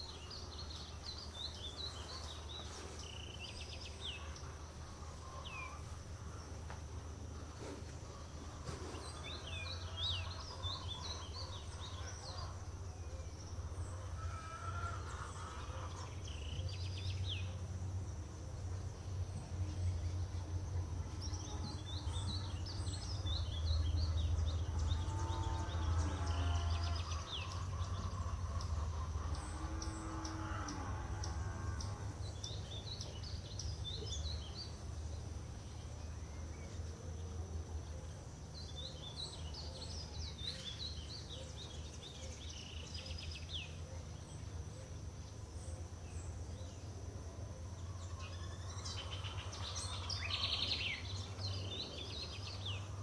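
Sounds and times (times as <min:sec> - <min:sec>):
small birds chirping: 0:00.0 - 0:53.0
constant low rumble: 0:14.9 - 0:53.0.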